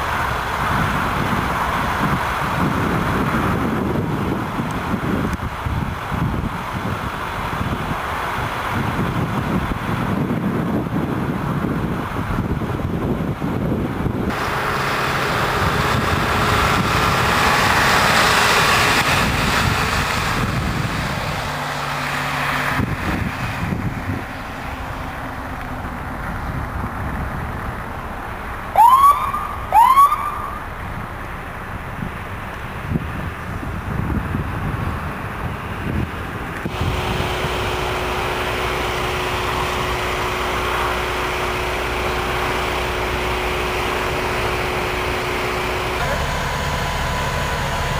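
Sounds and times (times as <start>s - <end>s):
vehicles passing: 0.0s - 47.9s
wind rushing: 15.4s - 25.3s
ambulance siren whoops: 28.8s - 30.7s.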